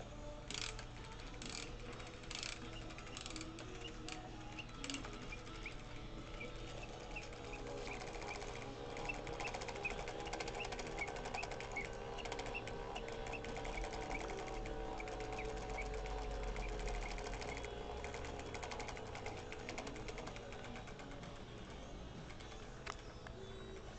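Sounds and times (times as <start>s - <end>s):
clockwork clicking: 0.5s - 23.9s
whistled bird song tones: 23.0s - 23.9s.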